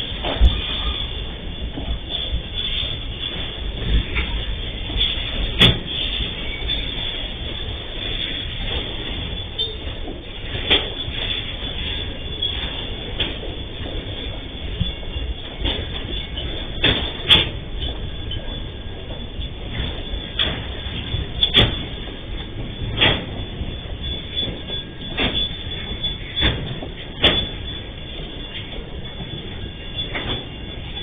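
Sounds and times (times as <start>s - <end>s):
freight train rumbling past: 0.0s - 31.0s
train wagons clanking: 0.0s - 31.0s.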